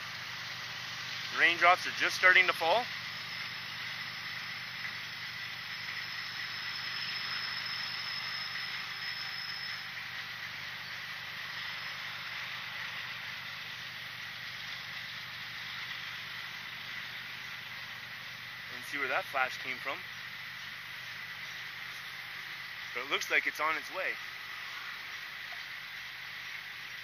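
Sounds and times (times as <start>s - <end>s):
even hiss: 0.0s - 27.0s
higher-pitched insect trill: 0.0s - 27.0s
insects trilling: 0.0s - 27.0s.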